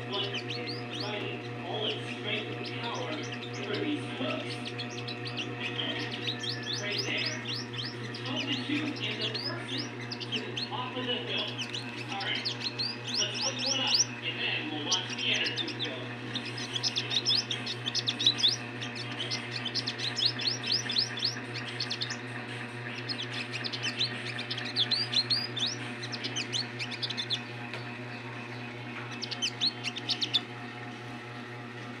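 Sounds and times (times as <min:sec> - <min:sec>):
bird chirping: 0:00.0 - 0:14.2, 0:14.8 - 0:30.5
steady low hum: 0:00.0 - 0:32.0.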